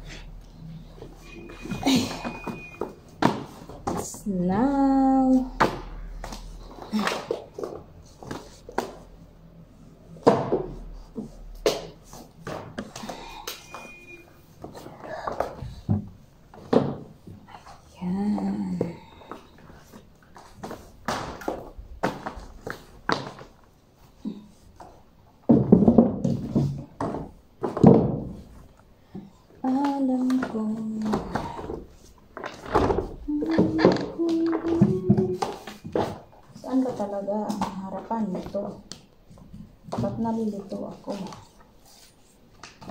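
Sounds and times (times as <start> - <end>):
books knocking: 2.5 - 4.1, 14.6 - 17.4, 20.4 - 23.6, 25.5 - 28.6, 30.3 - 41.4.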